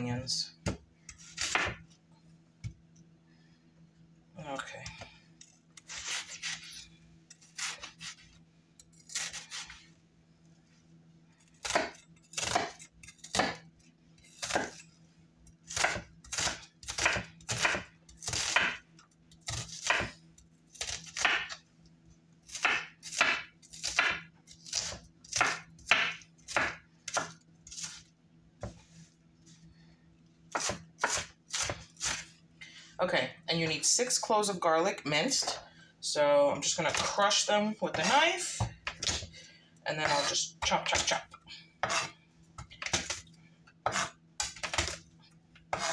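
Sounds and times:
knife chopping on cutting board: 1.4s - 1.8s, 11.6s - 13.6s, 15.7s - 18.8s, 19.5s - 20.2s, 20.8s - 21.6s, 22.5s - 28.0s, 30.5s - 32.3s, 41.8s - 43.2s, 43.8s - 45.0s.

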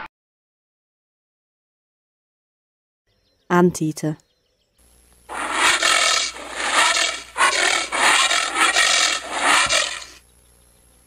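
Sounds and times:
anteater calling: 5.3s - 10.2s.

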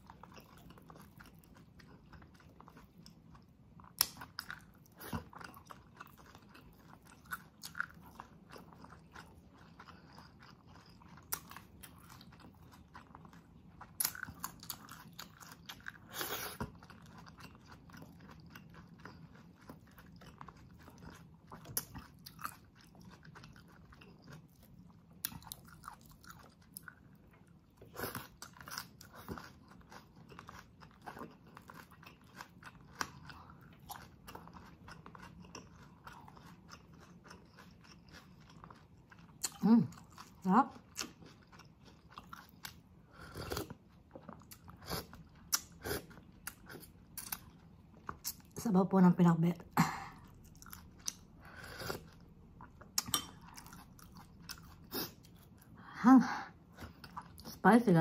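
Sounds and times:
food crunching: 0.0s - 48.6s, 50.1s - 55.8s
person chewing with wet smacks: 0.0s - 48.7s, 49.6s - 55.8s, 56.5s - 57.6s.

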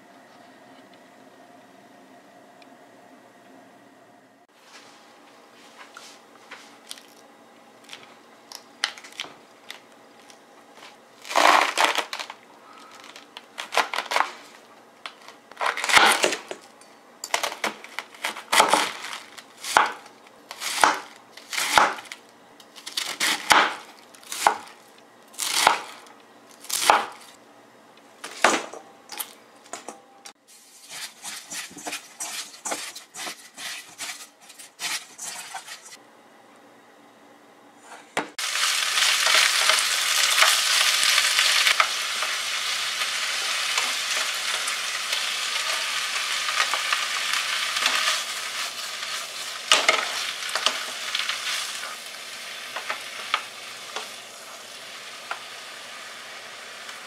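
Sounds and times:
knife cutting cabbage on board: 17.4s - 22.1s, 30.8s - 36.0s
cabbage rubbed in steel bowl: 30.5s - 36.0s.

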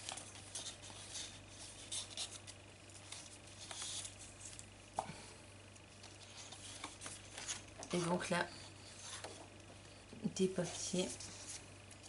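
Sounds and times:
paper rustling: 0.0s - 4.7s, 6.0s - 9.5s.

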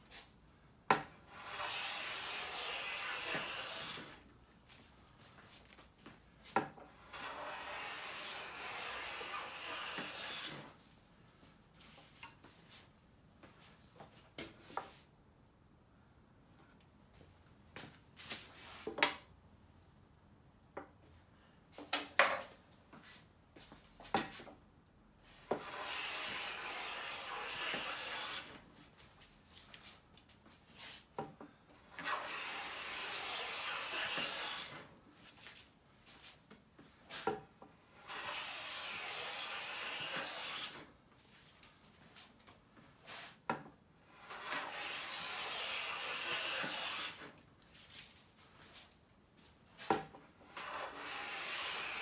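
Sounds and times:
hand plane shaving wood: 1.2s - 4.2s, 6.9s - 10.7s, 25.5s - 28.6s, 31.9s - 34.9s, 37.9s - 40.9s, 44.1s - 47.3s, 50.4s - 52.0s.

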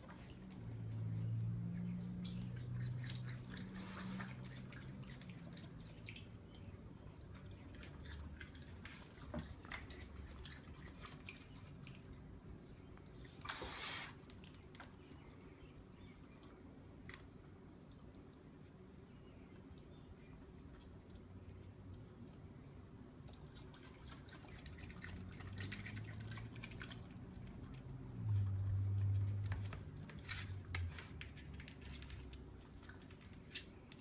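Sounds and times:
water splashing in plastic bowl: 23.3s - 30.0s.

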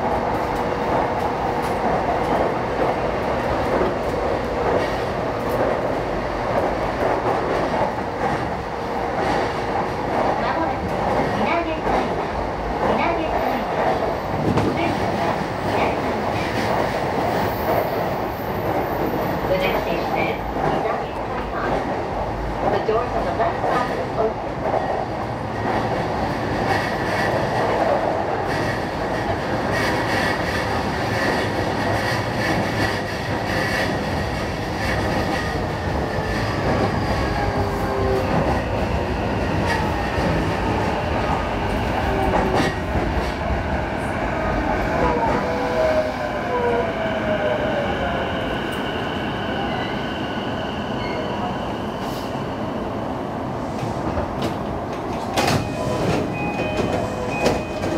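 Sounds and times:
train wheels rumbling on rail: 0.0s - 57.9s
rail-joint clicks: 53.8s - 57.9s.

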